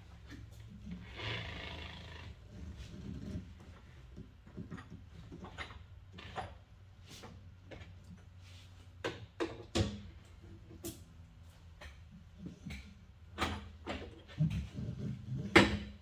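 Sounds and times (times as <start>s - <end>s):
knocks and clunks of tools: 3.3s - 6.6s, 9.0s - 11.0s, 11.8s - 16.0s.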